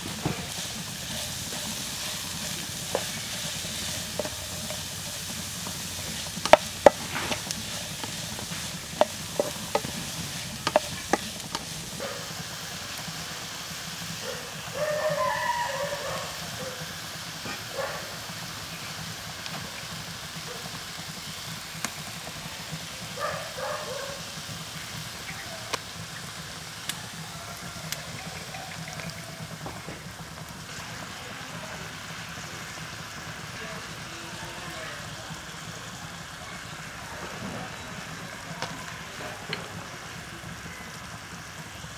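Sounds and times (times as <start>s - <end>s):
onion sizzling in a frying pan: 0.0s - 41.9s
spatula scraping a pan: 0.2s - 12.0s
distant voice calling: 14.2s - 16.8s.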